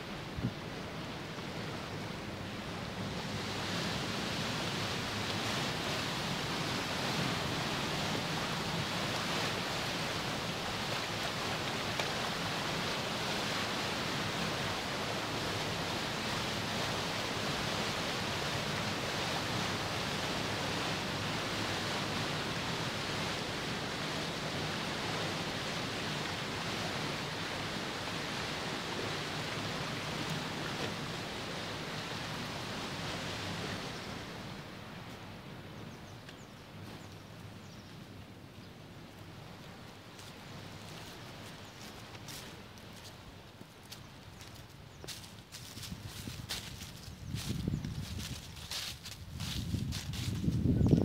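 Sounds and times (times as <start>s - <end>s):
turbulent water rushing: 0.0s - 35.6s.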